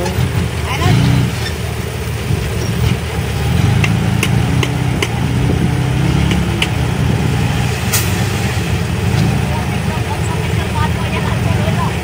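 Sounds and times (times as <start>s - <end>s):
diesel engine running: 0.0s - 12.0s
load sliding off truck bed: 7.3s - 9.4s.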